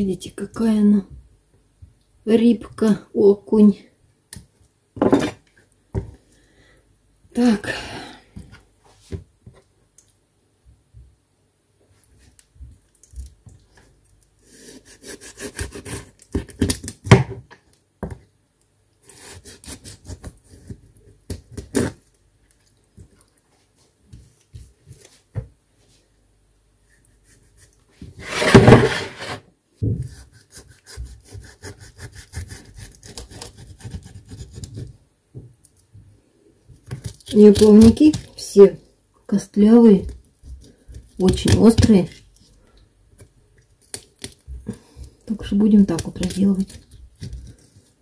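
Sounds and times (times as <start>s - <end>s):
knife sawing through fish fins: 14.6s - 16.1s, 30.1s - 34.8s.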